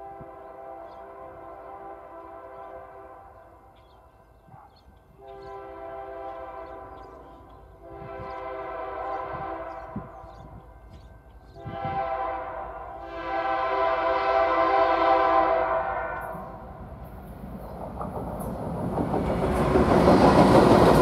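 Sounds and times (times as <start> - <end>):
train air horn blasts: 0.0 - 3.5, 5.1 - 10.7, 11.4 - 16.6.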